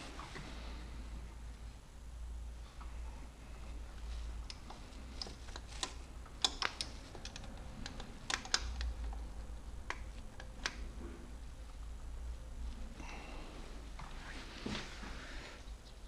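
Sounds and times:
wrench clicking on engine parts: 4.5 - 10.8.

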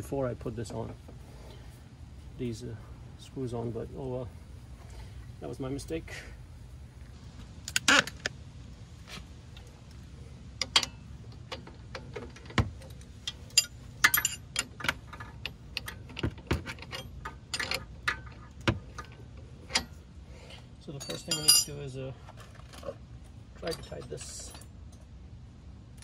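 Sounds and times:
metal hand tools clinking: 13.2 - 20.0, 20.9 - 23.0, 23.6 - 25.0.

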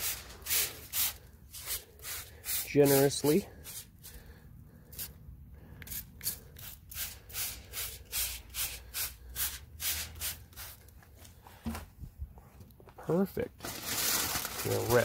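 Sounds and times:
spray bottle squirting: 0.0 - 4.2, 5.8 - 10.8.

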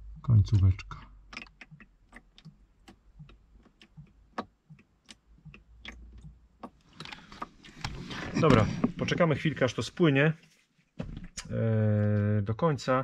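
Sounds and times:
coolant dripping into container: 0.0 - 8.6.

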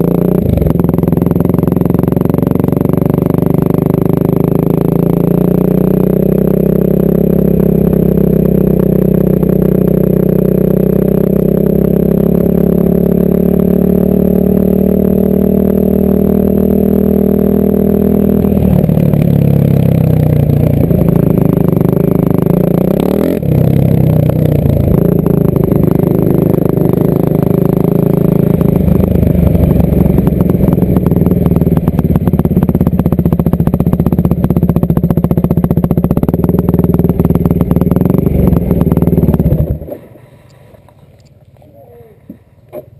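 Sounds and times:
dirt bike engine running: 0.0 - 40.9.

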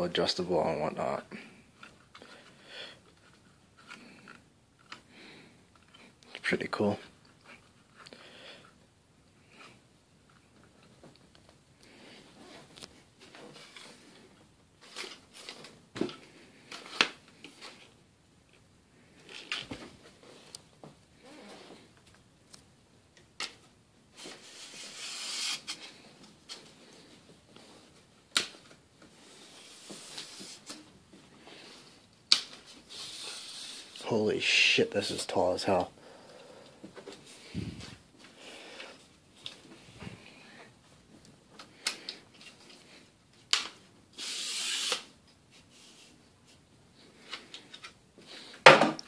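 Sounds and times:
scraping hiss: 32.9 - 34.1.

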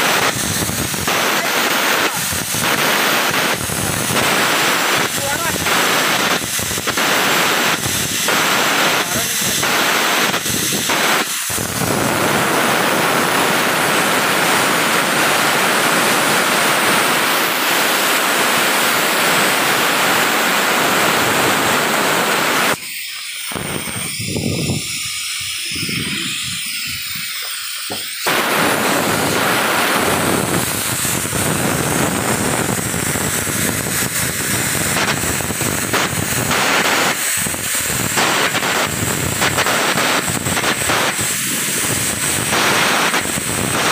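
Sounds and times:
arc welding noise: 0.0 - 43.9.

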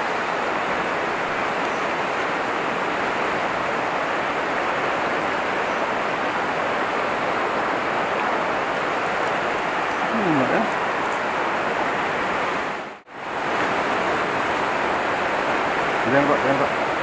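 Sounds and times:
river water flowing over rocks: 0.0 - 17.0.

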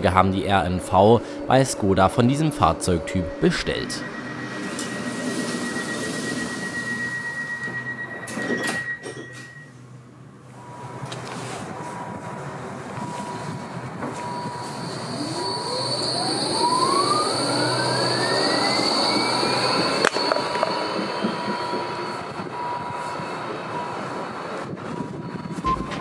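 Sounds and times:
steady high tone: 0.0 - 9.9, 13.0 - 22.6, 25.6 - 26.0
tram electric drive whining: 0.0 - 26.0.

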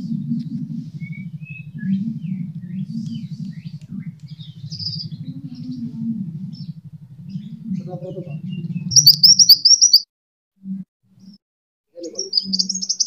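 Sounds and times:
low pulsing hum: 0.0 - 9.7
bird singing high chirps: 0.0 - 10.1, 12.0 - 13.0.

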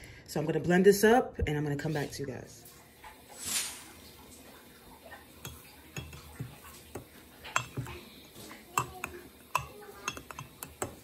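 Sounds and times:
spoon clinking against glass mug: 7.5 - 8.0, 8.8 - 11.0.

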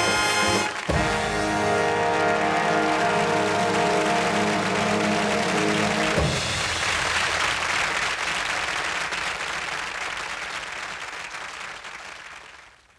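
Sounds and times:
studio audience applause: 0.0 - 12.9
closing music held chord: 1.0 - 6.9.

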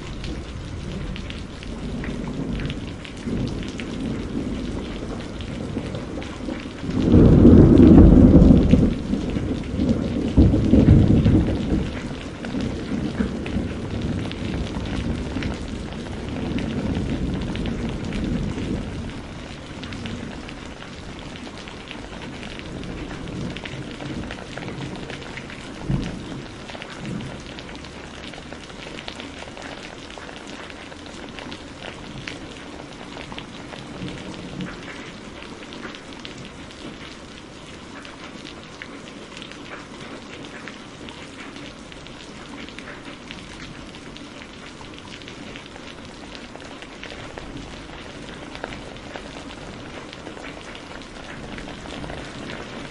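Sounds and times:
thunder rumbling: 0.0 - 37.3, 41.8 - 52.9
steady rain falling: 0.0 - 52.9.

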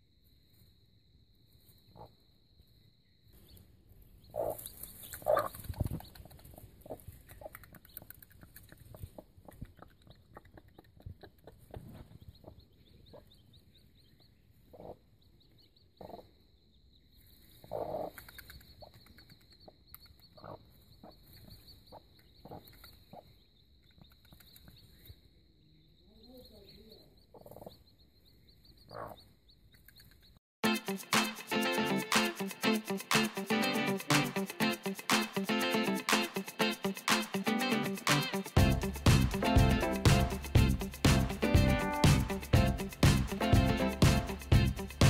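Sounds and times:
chicks peeping: 4.3 - 16.2, 26.1 - 30.3.

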